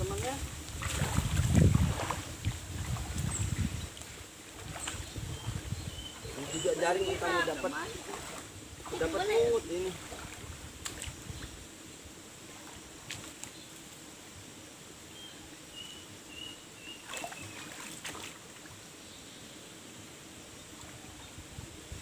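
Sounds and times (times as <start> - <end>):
water splashing and sloshing: 0.0 - 11.6, 12.4 - 14.0, 17.0 - 18.8
faint outdoor hiss: 0.0 - 22.0.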